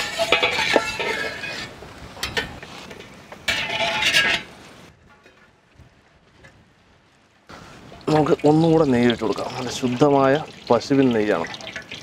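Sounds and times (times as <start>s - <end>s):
metallic clatter and ringing: 0.0s - 2.5s
metal ladle scraping a pot: 0.0s - 5.5s.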